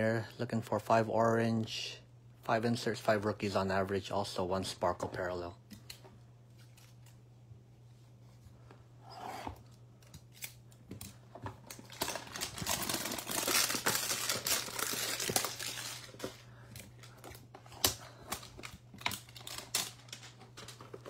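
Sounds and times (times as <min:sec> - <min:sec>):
tearing cardboard and wrapper: 0:11.7 - 0:16.4, 0:17.6 - 0:20.8.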